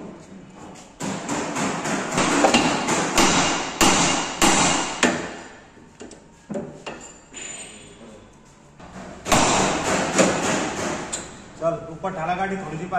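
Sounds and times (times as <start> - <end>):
hammer striking metal: 1.1 - 5.4, 9.3 - 11.3.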